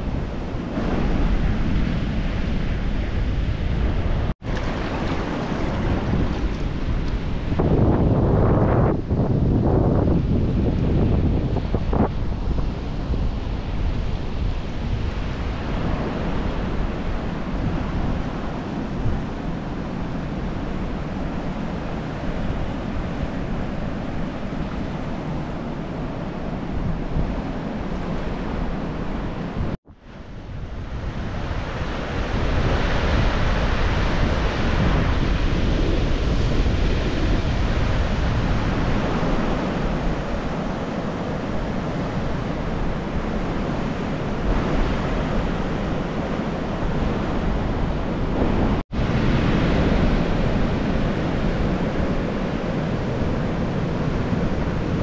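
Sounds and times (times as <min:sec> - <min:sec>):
waves breaking: 0:00.0 - 0:08.8
ocean surf washing: 0:00.0 - 0:55.0
wind buffeting microphone: 0:00.0 - 0:55.0.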